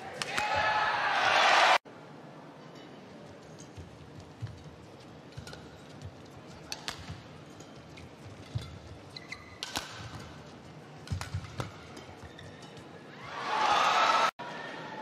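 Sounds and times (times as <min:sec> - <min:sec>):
shoes squeaking on court: 0:03.4 - 0:13.1
racket striking shuttlecock: 0:06.7 - 0:07.2, 0:09.5 - 0:12.2.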